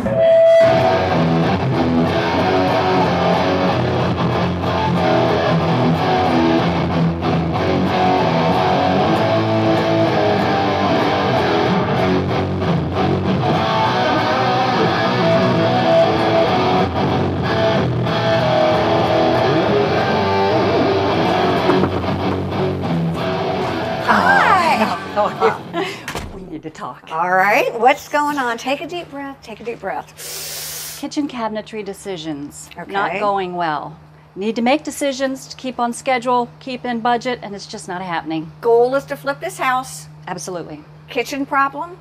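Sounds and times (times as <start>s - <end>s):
electric guitar playing: 0.0s - 25.9s.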